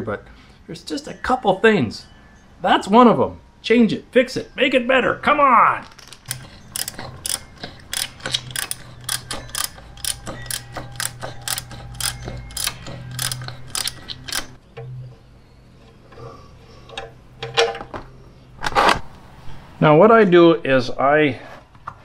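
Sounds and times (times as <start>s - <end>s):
ratchet wrench clicking: 6.2s - 14.6s.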